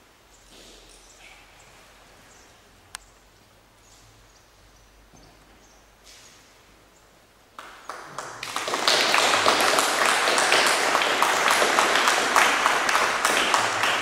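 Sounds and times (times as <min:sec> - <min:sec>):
audience applauding: 0:07.6 - 0:14.0.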